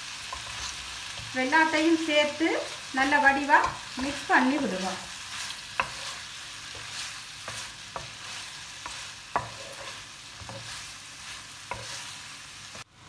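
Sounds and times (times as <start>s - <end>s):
food sizzling in a wok: 0.0s - 13.0s
spatula tapping and scraping pan: 0.2s - 1.4s, 3.1s - 4.2s, 5.2s - 12.8s.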